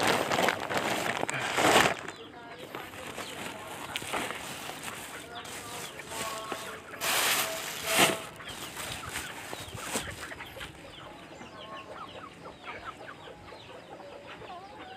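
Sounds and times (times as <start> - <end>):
plastic bags and sacks rustling: 0.0 - 10.8
chickens clucking: 0.0 - 14.9.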